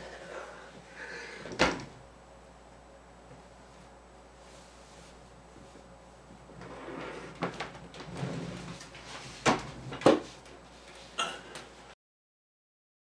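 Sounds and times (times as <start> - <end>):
rustling and scuffling: 3.3 - 11.2.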